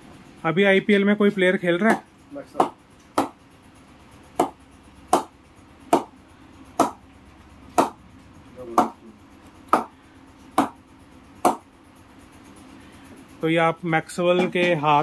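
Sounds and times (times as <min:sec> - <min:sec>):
ball knocking on cricket bat: 0:04.4 - 0:06.1, 0:06.8 - 0:07.0, 0:07.8 - 0:08.0.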